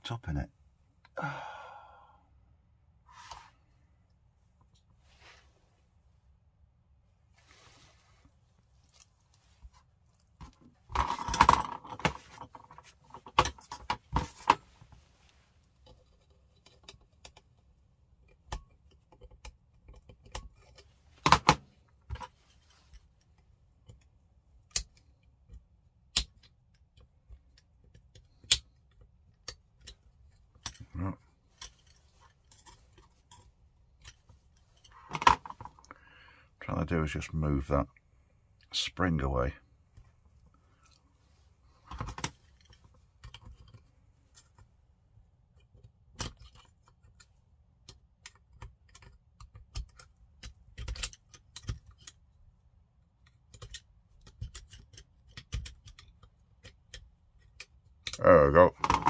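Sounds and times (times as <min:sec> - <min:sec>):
metal tool clicks and rattles: 0:45.7 - 0:52.2, 0:53.2 - 0:58.2.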